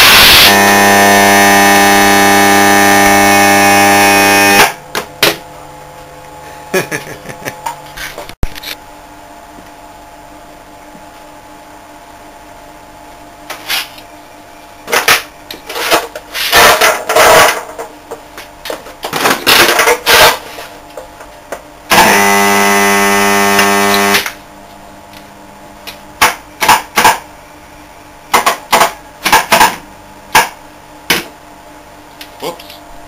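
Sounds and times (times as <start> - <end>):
steady electrical buzz: 0.0 - 33.0
electrical arcing zaps: 16.3 - 17.6, 21.9 - 24.4.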